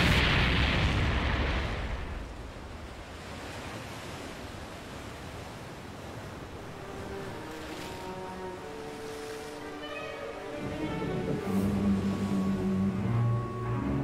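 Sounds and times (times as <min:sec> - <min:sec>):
explosion rumble: 0:00.0 - 0:02.4
wind and surf ambience: 0:00.0 - 0:14.0.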